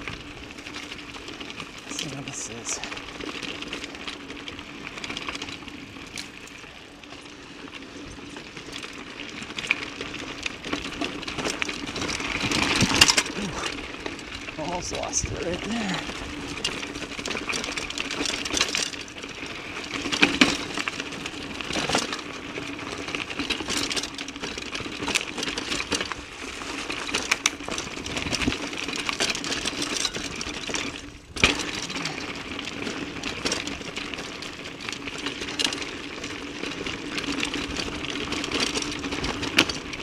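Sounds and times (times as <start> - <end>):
bike rattling over bumps: 0.0 - 40.0
bike tyres rolling on dirt: 0.0 - 40.0
wind noise: 14.5 - 16.6, 27.9 - 28.6.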